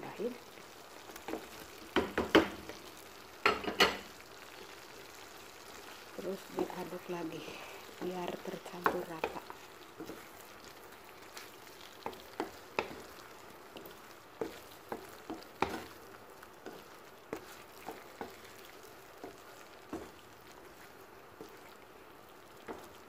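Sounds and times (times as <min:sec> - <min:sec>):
low sizzle: 0:00.0 - 0:23.0
spatula knocking and scraping pan: 0:01.2 - 0:02.8, 0:03.4 - 0:04.1, 0:08.0 - 0:10.3, 0:12.0 - 0:13.2, 0:13.8 - 0:16.0, 0:16.6 - 0:20.2, 0:22.6 - 0:23.0.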